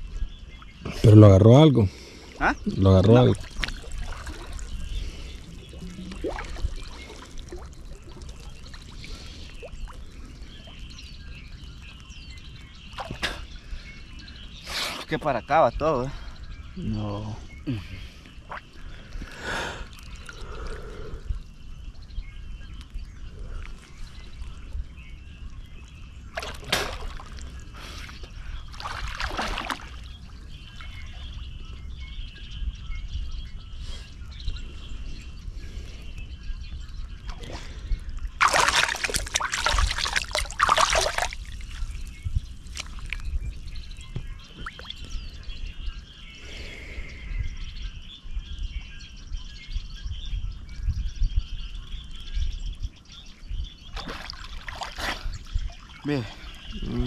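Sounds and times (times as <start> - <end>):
water splashing and trickling: 2.1 - 16.3, 17.0 - 22.0, 22.7 - 31.6, 36.9 - 45.4, 53.8 - 57.0.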